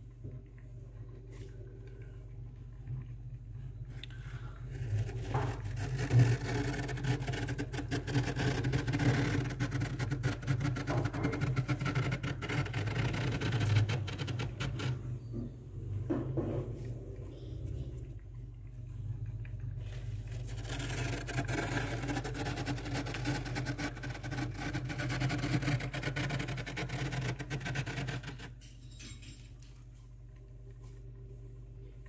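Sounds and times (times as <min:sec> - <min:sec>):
steady low hum: 0:00.0 - 0:32.0
fingers scraping freezer frost: 0:04.4 - 0:15.1, 0:19.9 - 0:28.6.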